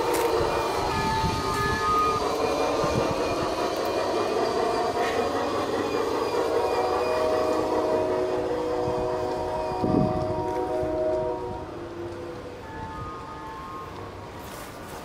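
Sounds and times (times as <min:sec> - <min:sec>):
model train whirring on rails: 0:00.0 - 0:15.0
held chord: 0:07.0 - 0:14.6.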